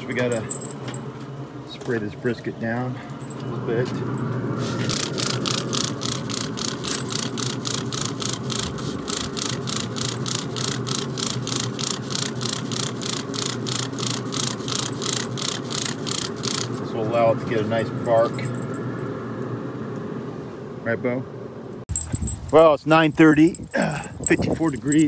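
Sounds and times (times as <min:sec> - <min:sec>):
steady low hum: 0:00.0 - 0:25.0
spray bottle spritzing: 0:04.6 - 0:16.8.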